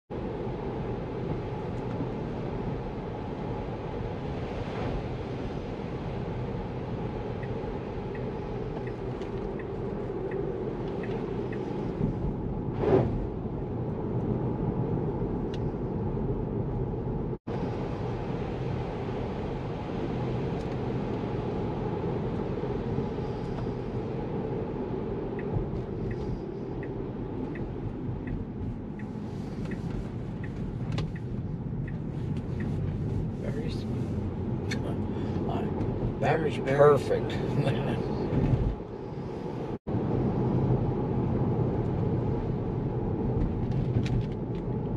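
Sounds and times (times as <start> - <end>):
road and tyre noise in car: 0.1 - 44.9
light ticking: 7.2 - 12.0, 25.2 - 33.1.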